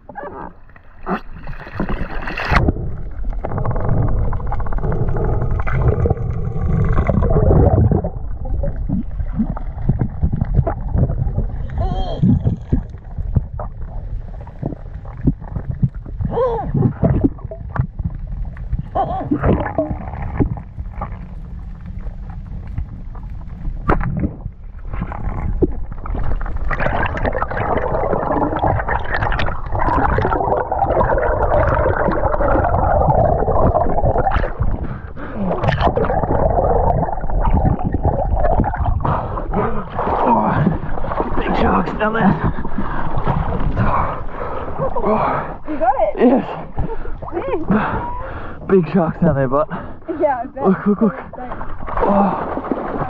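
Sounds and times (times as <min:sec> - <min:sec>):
underwater knocks and clicks: 0:00.0 - 0:34.9, 0:35.6 - 0:39.1
low underwater rumble: 0:00.0 - 0:53.0
water splashing: 0:00.0 - 0:53.0.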